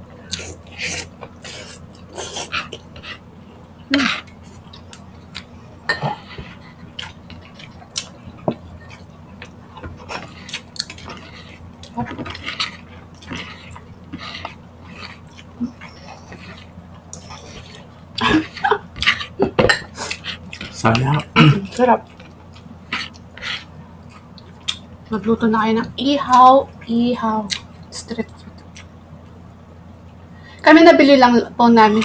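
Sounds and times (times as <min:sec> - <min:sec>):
wet chewing: 0:03.9 - 0:24.9, 0:27.4 - 0:29.0.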